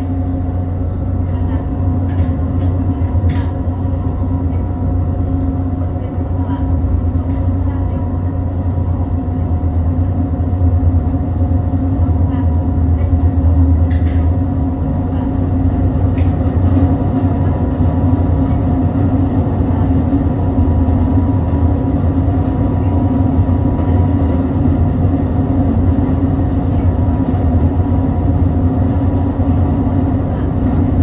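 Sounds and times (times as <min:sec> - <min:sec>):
ship diesel engines droning: 0:00.0 - 0:31.0.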